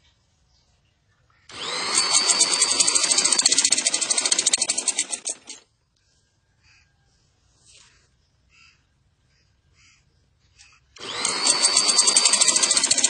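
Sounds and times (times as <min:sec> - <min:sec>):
sewing machine stitching: 0:01.5 - 0:05.6, 0:11.0 - 0:13.0.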